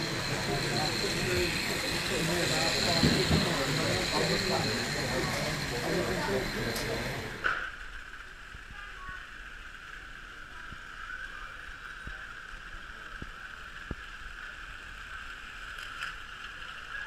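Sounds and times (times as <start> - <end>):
model trains whining: 0.0 - 8.4.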